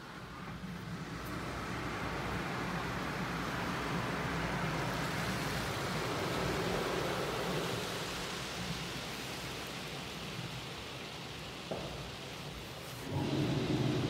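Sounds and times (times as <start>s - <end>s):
water spray rushing: 1.3s - 14.0s
low mechanical hum: 12.8s - 14.0s.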